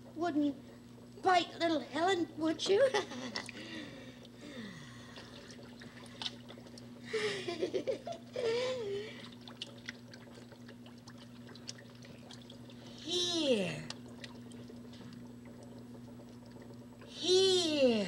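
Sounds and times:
steady low hum: 0.0s - 18.0s
woman laughing: 2.8s - 3.5s, 7.1s - 9.1s
water splashing and dribbling: 5.0s - 7.1s, 8.6s - 17.1s.

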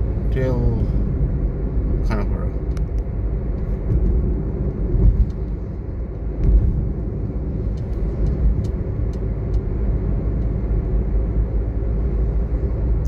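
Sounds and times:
car cabin road rumble: 0.0s - 13.0s
low bumps: 0.0s - 13.0s.

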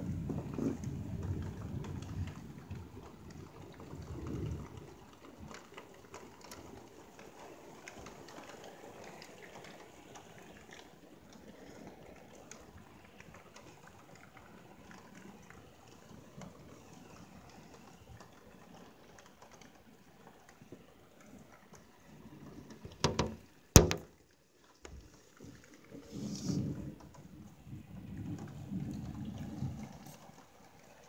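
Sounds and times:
rain heard through window: 0.0s - 31.0s
drops tapping: 23.0s - 24.1s.

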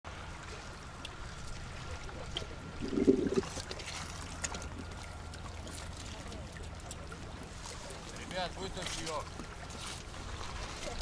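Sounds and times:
faint water sounds: 0.1s - 11.0s
wind rumble on microphone: 2.7s - 3.6s.

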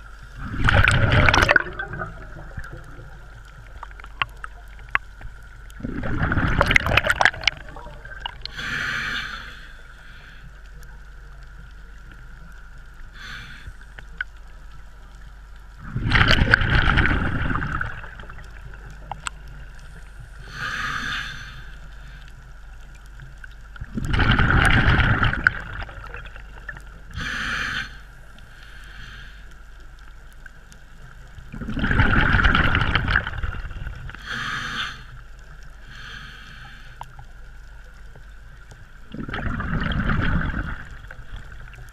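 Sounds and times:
diver exhaling bubbles underwater: 0.4s - 4.5s, 5.8s - 9.2s, 15.8s - 18.7s, 23.8s - 27.9s, 31.5s - 35.0s, 39.1s - 41.8s
regulator hiss: 8.0s - 10.9s, 13.0s - 14.1s, 19.6s - 22.3s, 27.1s - 29.7s.

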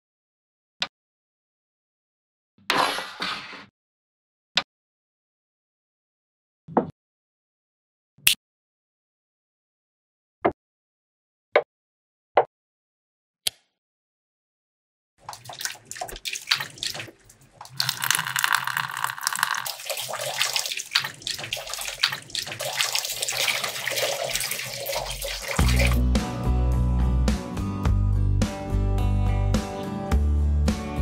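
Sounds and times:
water pouring and splashing: 15.2s - 26.0s.

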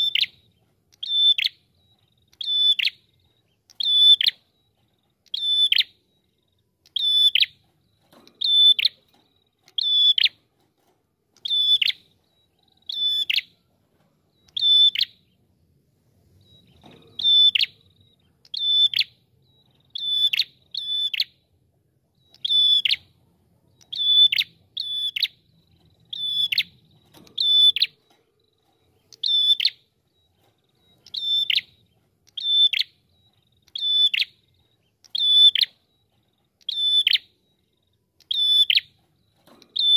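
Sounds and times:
bird calling with sharp high notes: 0.0s - 10.4s, 11.4s - 13.7s, 14.4s - 15.4s, 16.3s - 21.4s, 22.1s - 39.9s.

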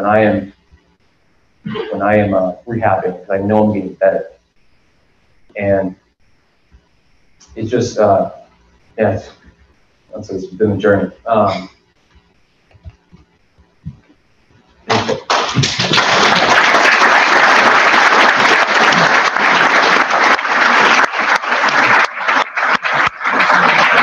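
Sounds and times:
audience applauding: 14.9s - 24.0s.

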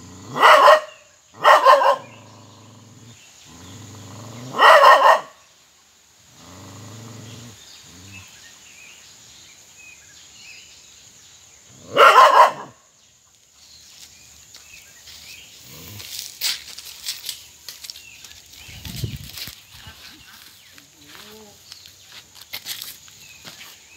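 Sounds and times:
dog barking: 0.3s - 2.2s, 4.5s - 5.4s, 11.9s - 12.8s
dog growling: 2.0s - 4.8s, 6.3s - 8.3s.

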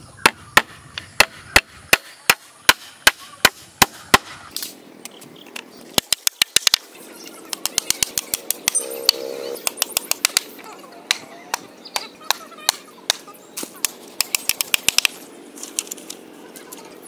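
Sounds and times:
hammer striking bamboo pole: 0.2s - 4.7s, 6.0s - 6.8s, 7.6s - 10.5s, 13.8s - 15.2s.

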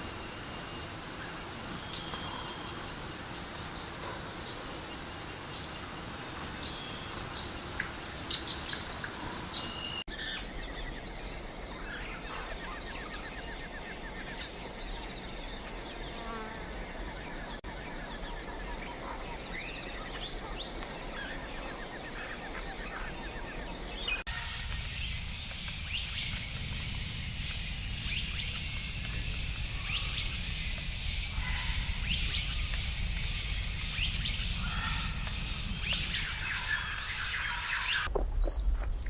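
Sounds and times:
steady high hiss: 0.0s - 10.1s, 23.8s - 38.1s
birds chirping: 0.0s - 38.8s.

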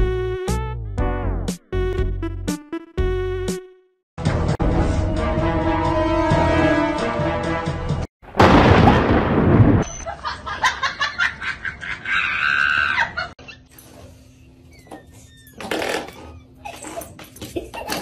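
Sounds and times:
loud thunderclap: 8.3s - 10.0s
high cry: 12.0s - 13.3s.

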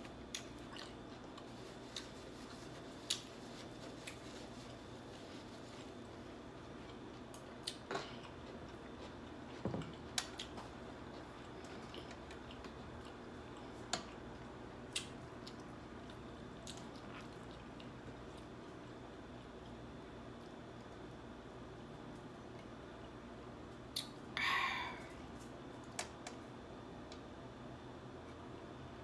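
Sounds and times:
person chewing food: 0.0s - 21.7s.

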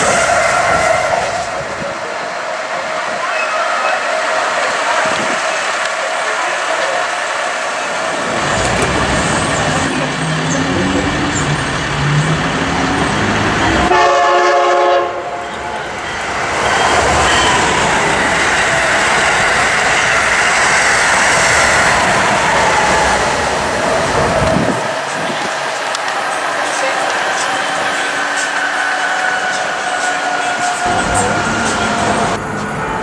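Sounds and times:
train horn blast: 0.0s - 1.6s, 13.8s - 15.6s
train rumble: 0.0s - 33.0s
train wheels rushing on rail: 0.0s - 33.0s.

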